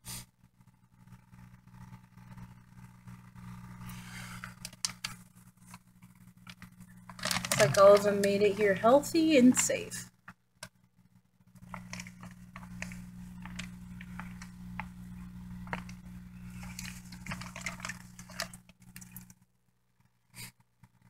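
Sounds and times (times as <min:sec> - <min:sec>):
steady low hum: 0:00.0 - 0:21.0
wet plastic bag crinkling: 0:04.4 - 0:08.8, 0:11.6 - 0:14.9, 0:15.6 - 0:19.4.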